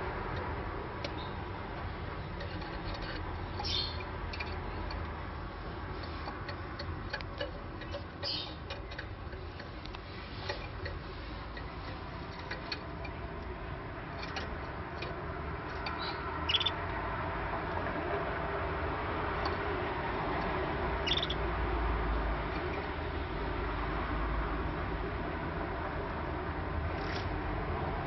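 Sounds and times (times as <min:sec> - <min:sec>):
canaries chirping: 0:02.0 - 0:04.9, 0:06.1 - 0:09.5, 0:15.6 - 0:16.8, 0:21.0 - 0:21.5.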